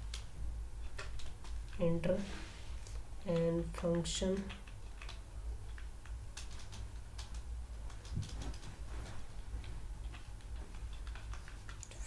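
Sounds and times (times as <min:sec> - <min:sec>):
computer keyboard keystrokes: 0:00.0 - 0:01.8, 0:03.3 - 0:08.7, 0:10.0 - 0:12.0
low electrical hum: 0:00.0 - 0:12.0.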